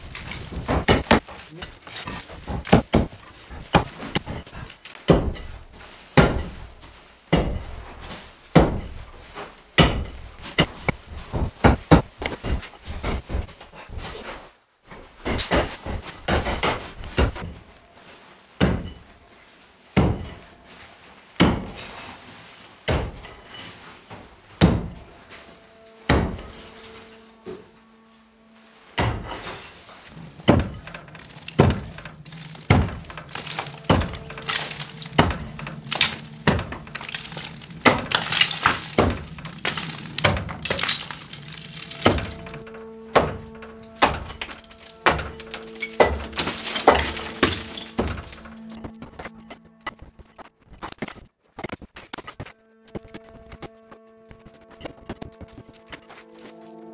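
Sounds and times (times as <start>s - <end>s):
rubble clattering: 0.0s - 13.6s, 30.1s - 52.4s
heavy blows smashing floor: 30.1s - 49.0s
brittle material cracking: 30.6s - 49.3s.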